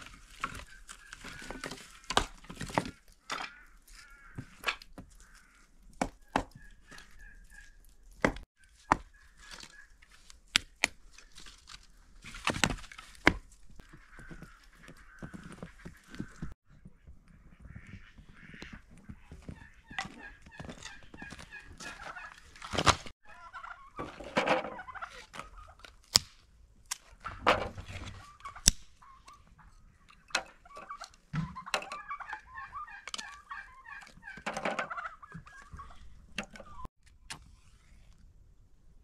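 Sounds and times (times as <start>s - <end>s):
poultry warbling calls: 0.5s - 2.4s, 3.2s - 7.8s, 8.6s - 10.0s, 13.8s - 22.6s, 23.2s - 25.8s, 28.1s - 36.9s.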